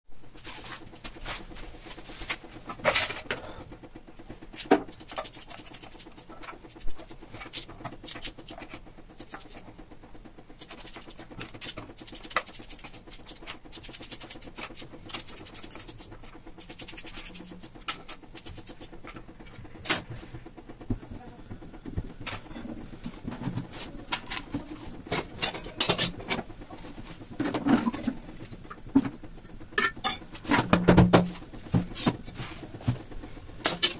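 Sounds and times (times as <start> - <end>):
pressure cooker metal knocks: 29.8 - 31.9.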